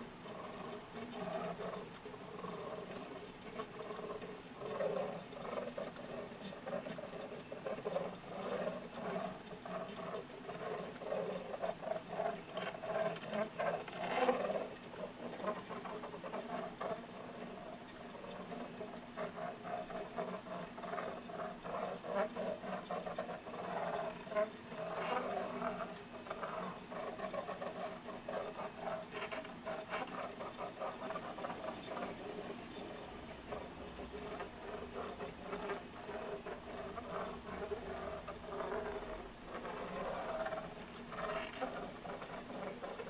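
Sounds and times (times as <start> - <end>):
fast irregular ticking: 0.0 - 43.0.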